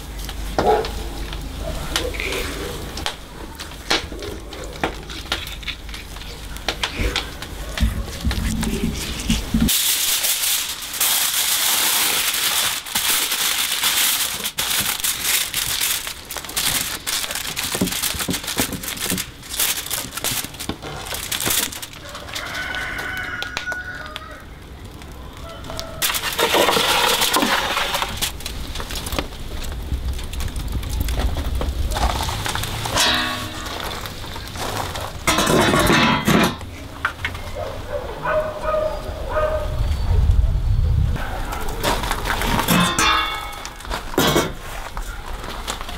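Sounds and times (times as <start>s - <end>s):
aluminium foil crinkling: 0.0s - 38.8s, 41.2s - 45.9s
rooster crowing: 22.0s - 24.6s, 25.2s - 26.1s.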